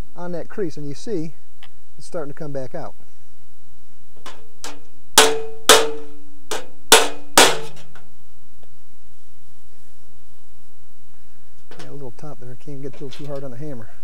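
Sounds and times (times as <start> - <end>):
hammer tapping sheet metal: 4.2 - 8.0.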